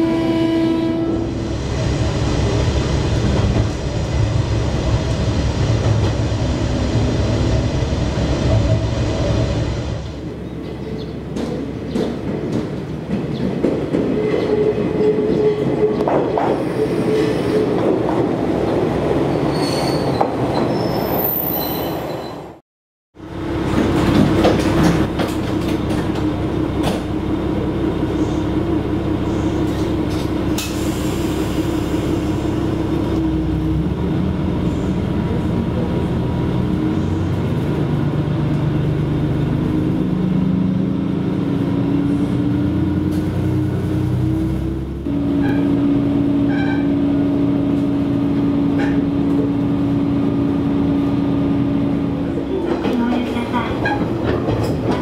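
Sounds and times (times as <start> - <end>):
diesel railcar arriving: 0.0 - 22.6, 23.2 - 55.0
high wheel squeal: 19.3 - 22.5, 46.4 - 47.0
engine hum: 23.2 - 55.0.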